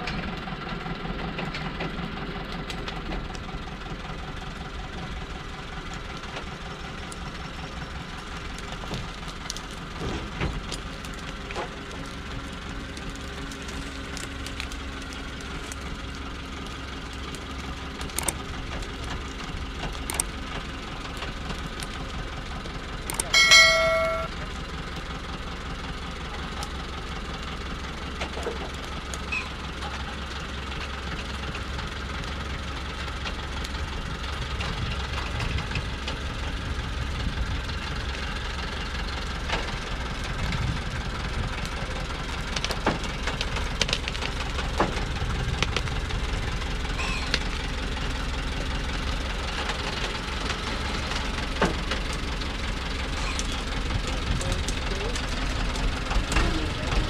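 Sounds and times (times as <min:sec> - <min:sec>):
truck diesel engine labouring: 0:00.0 - 0:57.0
loud high tone: 0:23.3 - 0:24.3.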